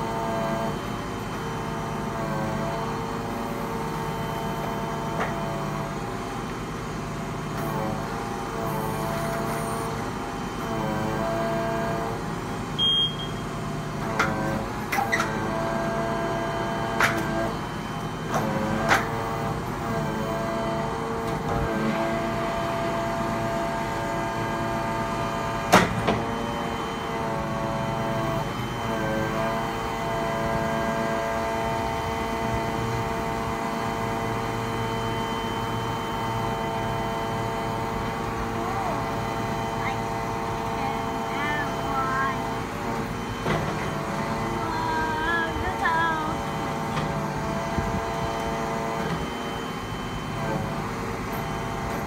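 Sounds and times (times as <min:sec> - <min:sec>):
hydraulic crane whining: 0:00.0 - 0:52.0
lorry engine running: 0:00.0 - 0:52.0
crane clunks and clicks: 0:03.9 - 0:05.9, 0:07.4 - 0:10.0, 0:14.0 - 0:23.2, 0:24.8 - 0:41.3, 0:42.4 - 0:44.6, 0:46.6 - 0:49.6.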